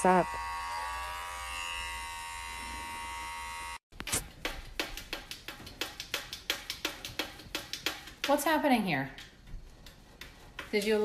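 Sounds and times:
electric hair clippers buzzing: 0.0s - 3.8s.

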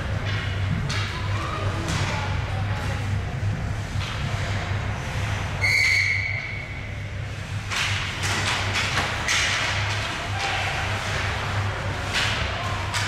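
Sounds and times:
hockey sticks clacking: 0.1s - 1.2s, 7.6s - 13.0s
whistle blowing: 5.6s - 6.6s.

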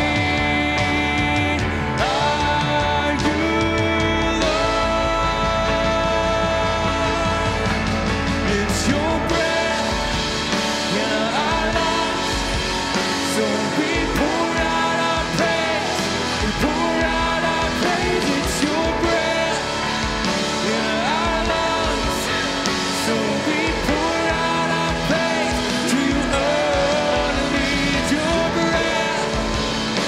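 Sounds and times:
worship band music: 0.0s - 30.0s.

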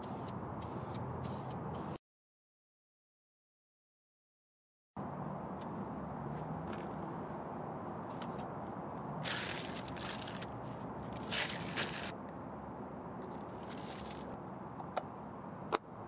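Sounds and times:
cards and paper rustling: 9.2s - 12.1s, 13.3s - 14.4s.

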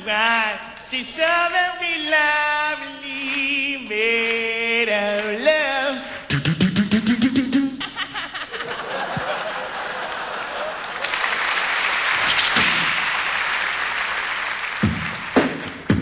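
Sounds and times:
man singing into microphone: 0.0s - 7.8s
applause: 10.1s - 16.0s.

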